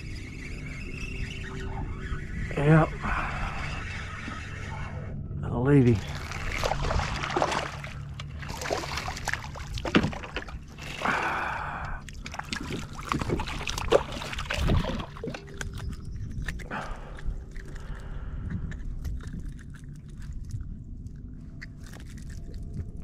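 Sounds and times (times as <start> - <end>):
fish thrashing and splashing: 6.0 - 23.0.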